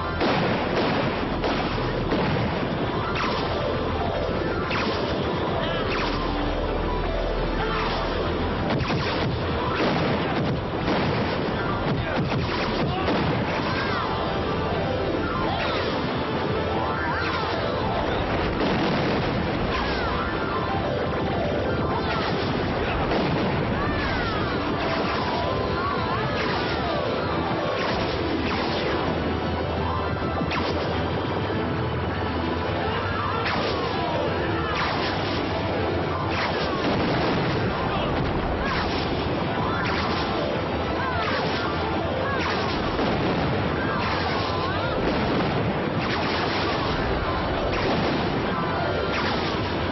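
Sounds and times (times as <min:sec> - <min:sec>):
crashing booming sound effects: 0:00.0 - 0:06.5, 0:07.8 - 0:14.0, 0:17.9 - 0:20.4, 0:21.1 - 0:25.7, 0:36.3 - 0:40.4, 0:42.3 - 0:49.9
dramatic orchestral score: 0:00.0 - 0:49.9.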